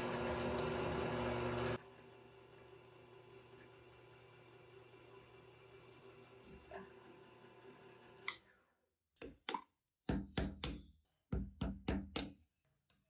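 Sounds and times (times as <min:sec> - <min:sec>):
machine hum: 0:00.0 - 0:05.7.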